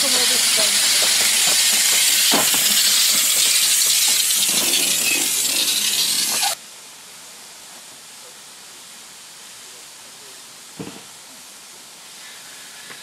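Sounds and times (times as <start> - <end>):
steam locomotive hissing: 0.0 - 6.6, 12.0 - 13.0
faint steady hiss: 0.0 - 13.0.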